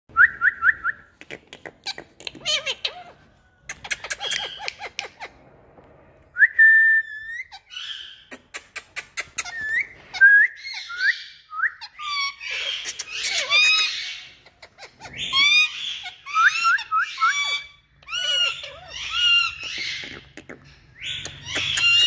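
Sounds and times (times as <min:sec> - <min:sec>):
parrot clicks and scratchy noises: 0:03.6 - 0:05.2, 0:08.3 - 0:09.8
parrot whistling: 0:09.3 - 0:19.8.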